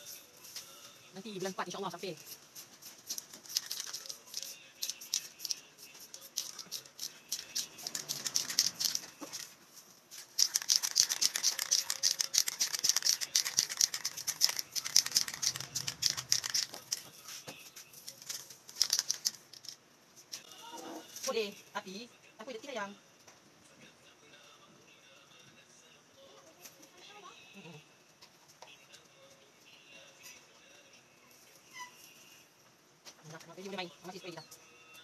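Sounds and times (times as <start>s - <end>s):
spray can mixing ball rattling: 2.2s - 20.4s.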